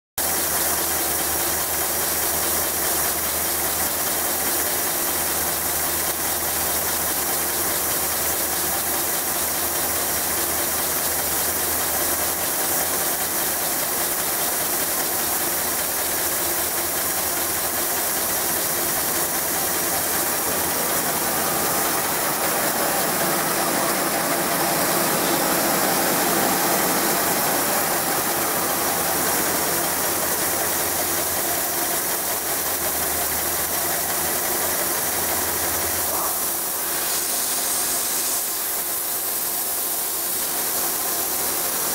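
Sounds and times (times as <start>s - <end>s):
hiss of air: 36.1s - 41.8s.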